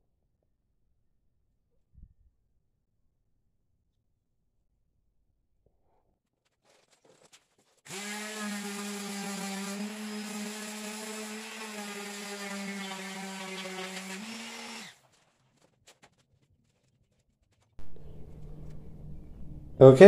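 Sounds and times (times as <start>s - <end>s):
electric palm sander on metal: 7.9s - 14.9s.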